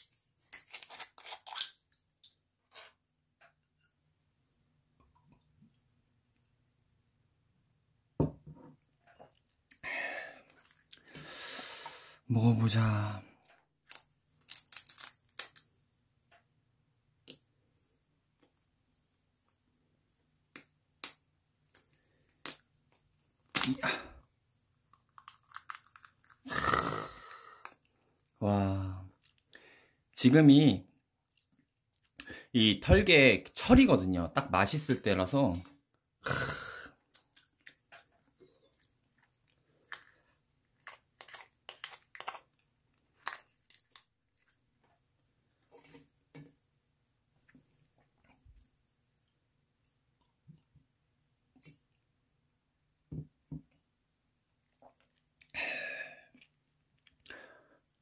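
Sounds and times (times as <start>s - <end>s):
crab shell cracking: 0.5s - 1.8s, 13.8s - 15.7s, 24.8s - 26.5s, 39.8s - 44.6s
person chewing: 10.5s - 11.2s, 24.8s - 28.4s, 36.3s - 44.9s, 54.6s - 55.6s.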